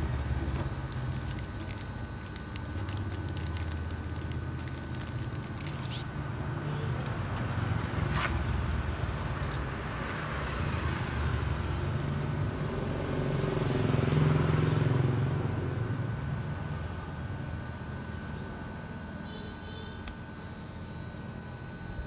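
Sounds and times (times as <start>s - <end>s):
plastic bag rustling: 0.0s - 6.2s
passing motor vehicles: 6.5s - 16.6s.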